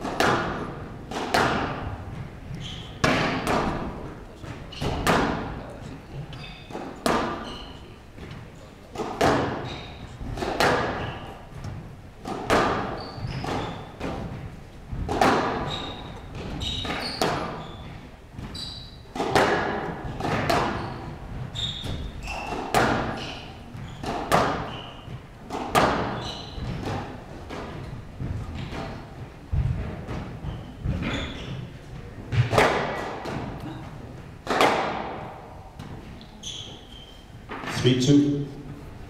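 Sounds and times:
squash ball hits echoing: 0.0 - 5.6, 6.4 - 7.5, 8.2 - 36.1
shoe squeaks on court floor: 2.5 - 3.4, 4.6 - 5.1, 6.2 - 8.0, 9.4 - 10.2, 10.9 - 11.5, 12.8 - 14.0, 15.6 - 19.1, 20.6 - 25.3, 25.9 - 26.8, 30.4 - 31.8, 36.2 - 38.0.

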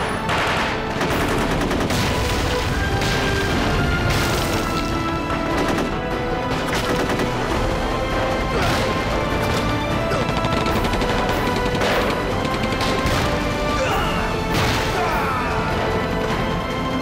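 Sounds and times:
dramatic film music: 0.0 - 17.0
rifle and machine-gun fire: 0.2 - 7.6, 8.7 - 13.6.

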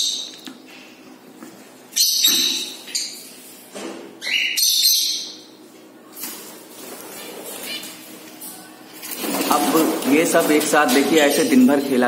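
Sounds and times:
birds squawking: 4.2 - 5.5, 6.9 - 8.2, 9.1 - 12.0.

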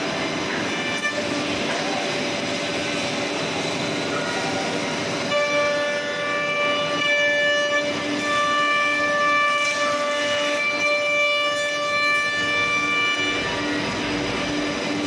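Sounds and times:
spindle high whine: 0.0 - 15.0
router cutting wood: 5.1 - 15.0.

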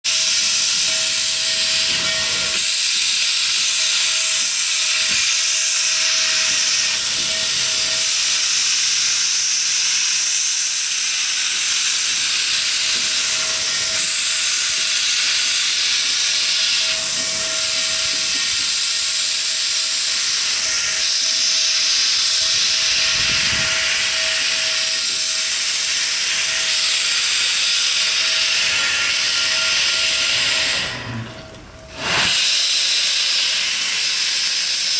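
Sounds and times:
steam hissing from cylinder cocks: 0.1 - 34.9.

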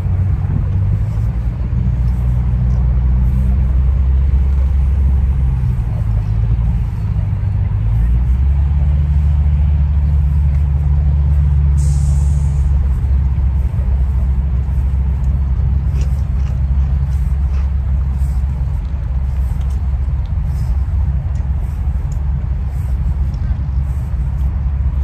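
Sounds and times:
wind buffeting microphone: 0.0 - 25.0
brief hiss: 11.8 - 12.7.

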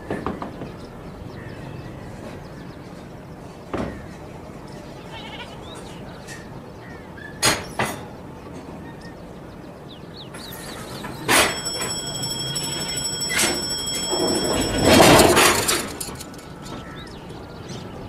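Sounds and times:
birds chirping: 4.4 - 7.4, 8.1 - 18.0
diesel train approaching: 10.0 - 18.0.

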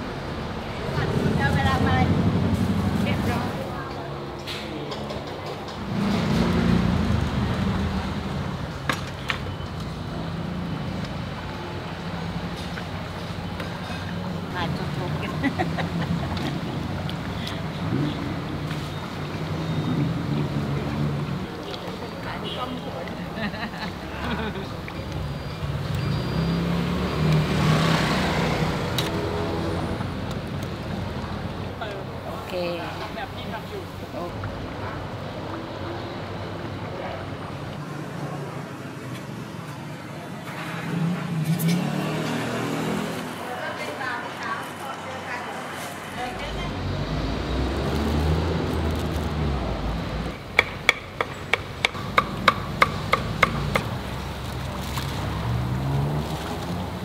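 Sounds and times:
street noise: 0.0 - 57.0
vehicle engine passing by: 0.5 - 3.8, 5.8 - 8.7, 25.4 - 32.1, 40.3 - 44.1, 44.8 - 50.4, 52.0 - 57.0
cleaver chopping on wooden block: 50.6 - 53.9.

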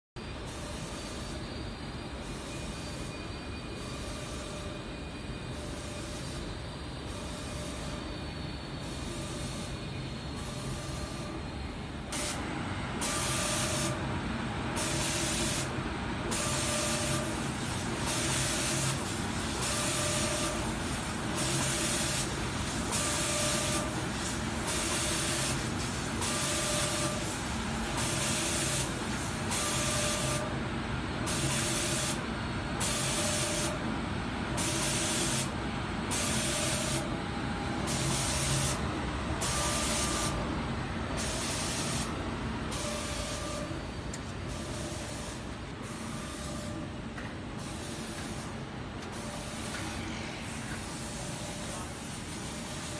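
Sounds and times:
steady machine hum: 0.2 - 52.9
spray guns hissing: 16.3 - 30.4.

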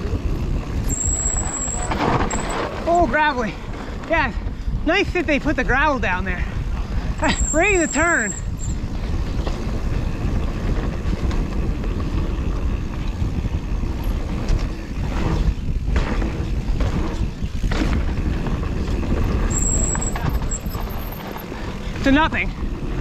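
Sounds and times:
bike rattling: 0.0 - 23.0
bike tyres on gravel: 0.0 - 23.0
bike knocking over bumps: 14.3 - 21.0.

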